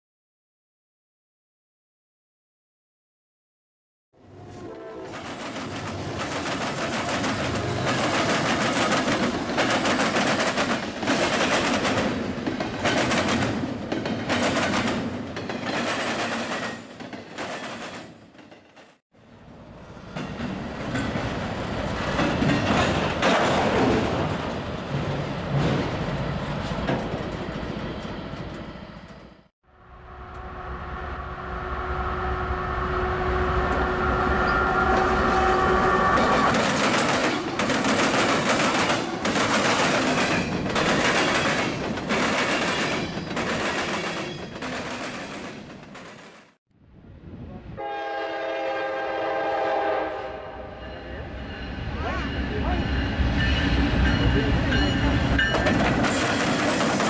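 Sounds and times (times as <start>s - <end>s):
steady locomotive tones: 4.2s - 57.0s
train wheels clacking over joints: 5.2s - 18.9s, 36.5s - 46.4s, 54.1s - 57.0s.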